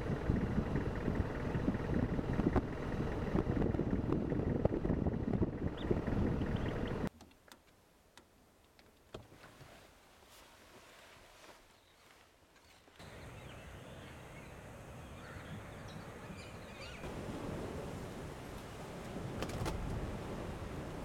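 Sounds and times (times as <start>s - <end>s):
low rumbling noise with crackles: 0.0s - 7.1s, 13.0s - 21.0s.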